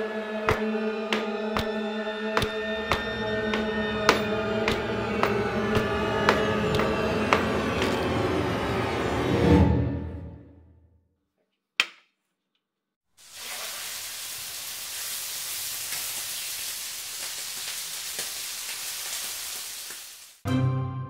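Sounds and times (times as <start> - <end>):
music: 0.0 - 11.0, 20.4 - 21.0
food sizzling in hot pan: 13.2 - 20.4.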